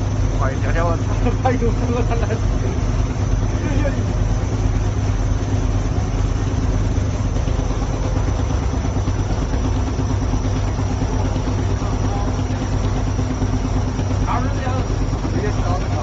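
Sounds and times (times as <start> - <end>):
low engine drone: 0.0 - 16.0.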